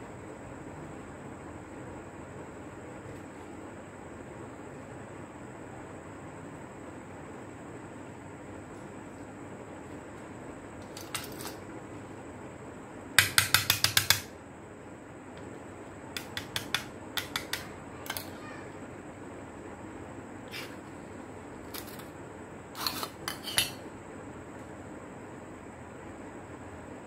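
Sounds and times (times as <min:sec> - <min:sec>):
clicks and clatter of small parts: 0:10.8 - 0:11.6, 0:16.2 - 0:18.3, 0:21.7 - 0:22.1.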